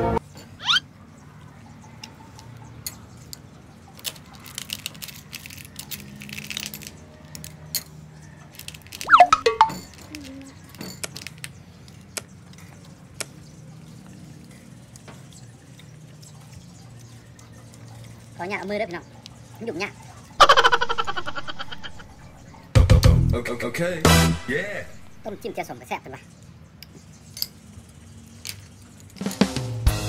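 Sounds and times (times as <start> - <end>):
shells clinking on plate: 8.6 - 11.5.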